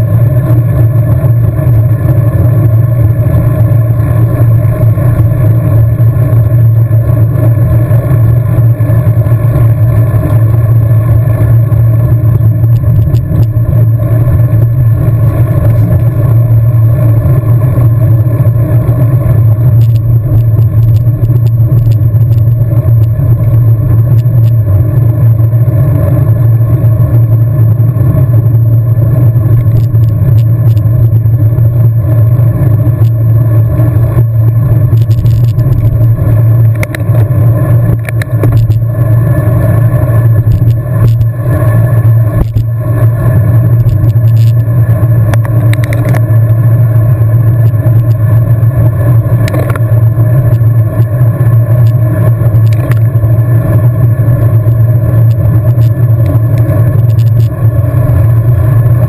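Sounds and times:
wind rushing over microphone: 0.0 - 59.0
bike clicks and knocks: 36.7 - 37.2, 45.3 - 46.3, 52.6 - 53.1.

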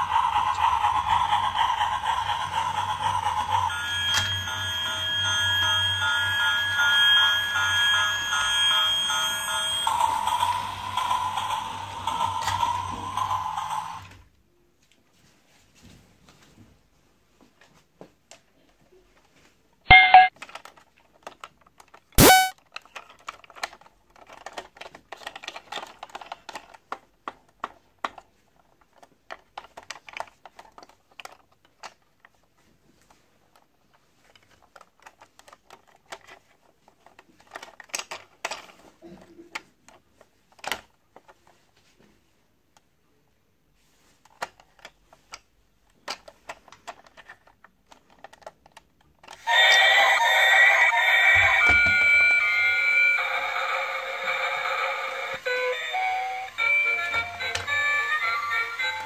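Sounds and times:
plastic toy clicks and rattles: 0.0 - 4.4, 20.0 - 32.4, 33.5 - 38.8, 39.5 - 41.5, 44.2 - 50.0, 54.3 - 59.0
toy horn tones: 19.9 - 20.3, 22.2 - 22.5, 49.4 - 59.0.

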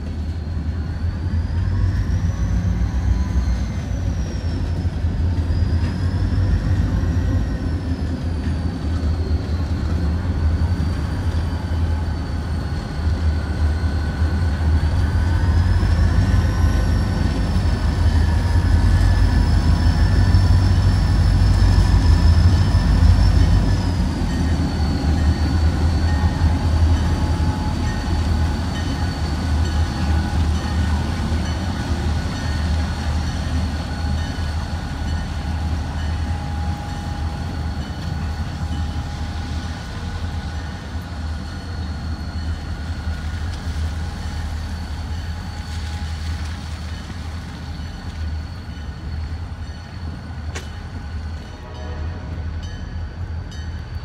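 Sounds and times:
freight train rumbling: 0.0 - 54.0.

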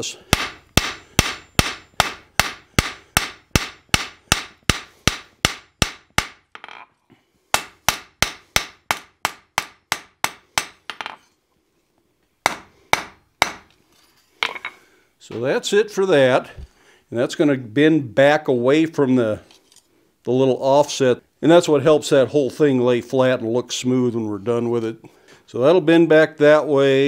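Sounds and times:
hammer striking iron on anvil: 0.3 - 6.8, 7.6 - 11.2, 12.5 - 13.7.

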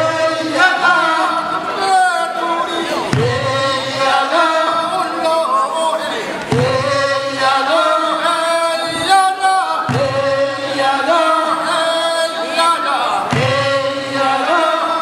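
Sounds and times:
men singing a work song: 0.0 - 15.0.

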